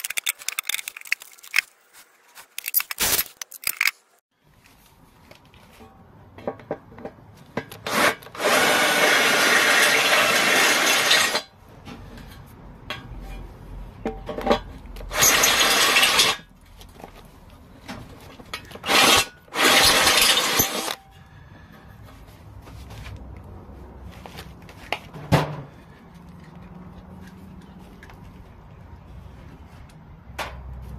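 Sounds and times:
drill cutting through metal: 7.9s - 11.5s, 15.1s - 16.4s, 18.8s - 21.0s.

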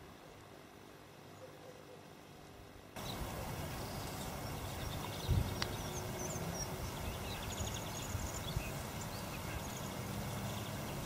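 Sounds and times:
low outdoor rumble: 2.5s - 11.0s
small birds chirping: 3.0s - 11.0s.

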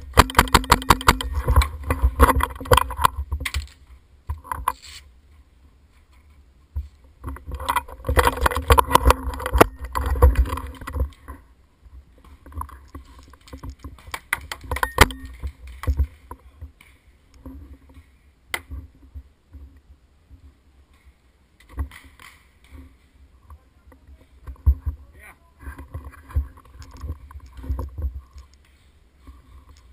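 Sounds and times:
paintball gunfire pops: 0.1s - 1.7s.

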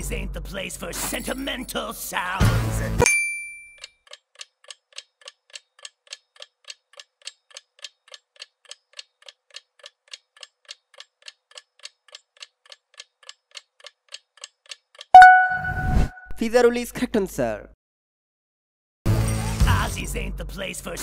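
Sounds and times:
clock ticking timer: 3.8s - 15.6s.

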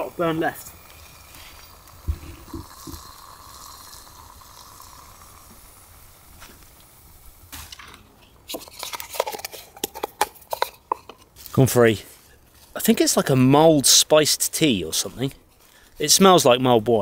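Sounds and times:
fire and water hissing: 0.0s - 12.3s.

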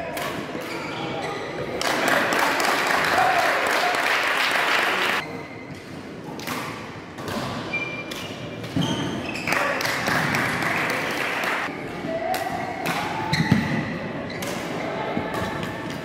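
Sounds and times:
loud steady hall noise: 0.0s - 16.0s
shoes squeaking on court: 0.7s - 1.6s, 7.6s - 9.7s.

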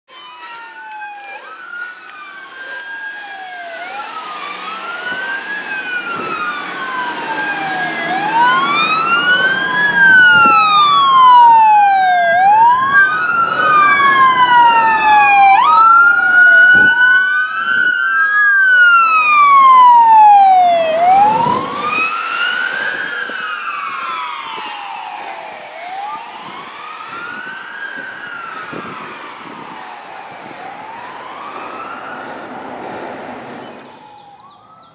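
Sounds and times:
siren yelping sweeps: 0.1s - 34.9s
sirens wailing: 0.1s - 34.9s.

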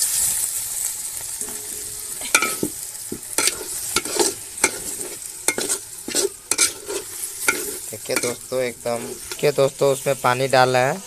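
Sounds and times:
chicken sizzling in a pot: 0.0s - 11.0s
ladle scraping a metal pot: 1.4s - 9.8s.

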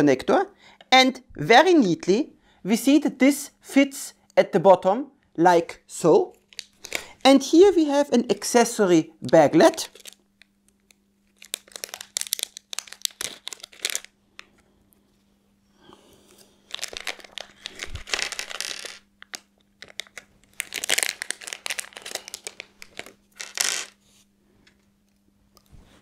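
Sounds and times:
faint steady hum: 0.0s - 26.0s
plastic bag crinkling and tearing: 6.4s - 7.2s, 9.2s - 14.5s, 16.6s - 24.0s.

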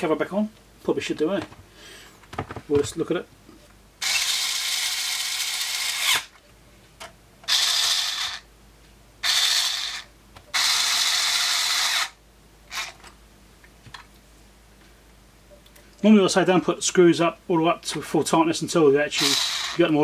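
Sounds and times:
electric screwdriver driving screws: 4.0s - 6.3s, 7.5s - 8.4s, 9.2s - 13.0s, 19.2s - 19.8s.

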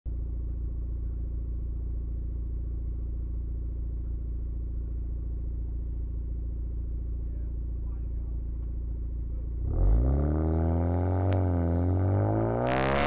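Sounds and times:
car engine idling: 0.1s - 9.9s.

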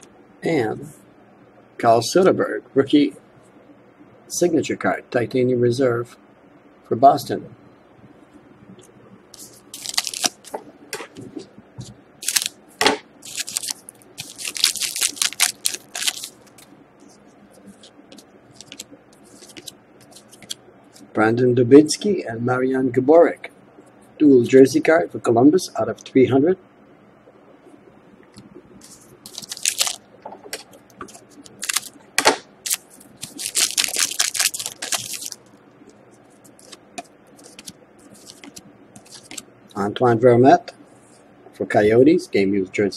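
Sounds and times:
foil wrapper crinkling and tearing: 9.4s - 10.5s, 12.2s - 12.6s, 13.2s - 16.7s, 18.2s - 20.6s, 28.8s - 30.0s, 31.0s - 31.9s, 32.6s - 35.4s, 36.5s - 39.4s
cards rustling and ticking: 9.4s - 10.6s, 12.2s - 12.6s, 13.2s - 21.1s, 28.8s - 32.0s, 32.6s - 39.5s.

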